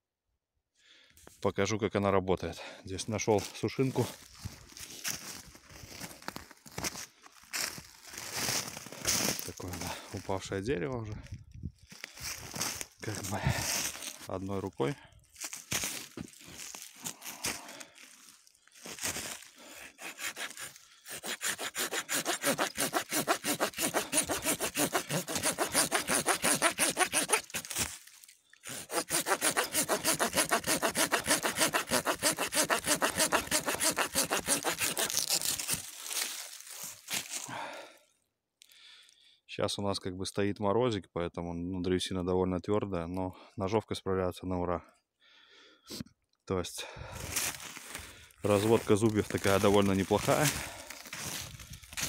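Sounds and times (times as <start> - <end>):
hand saw cutting wood: 19.8 - 28.0, 28.6 - 35.9.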